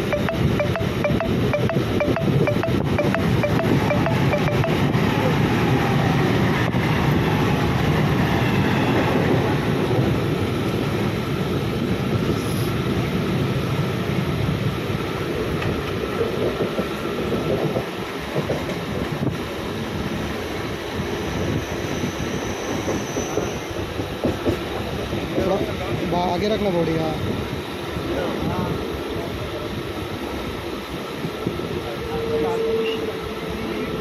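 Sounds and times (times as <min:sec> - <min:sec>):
train wheels rumbling on track: 0:02.8 - 0:34.0.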